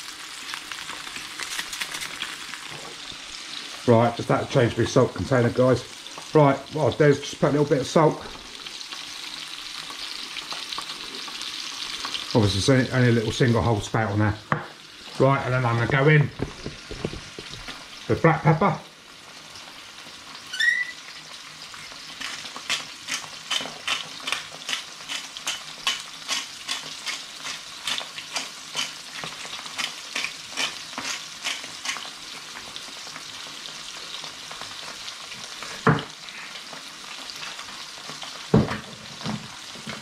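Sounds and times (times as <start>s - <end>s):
fish sizzling in a frying pan: 0.0s - 40.0s
short squeak: 20.5s - 21.2s
pepper grinder clicking: 22.7s - 29.0s.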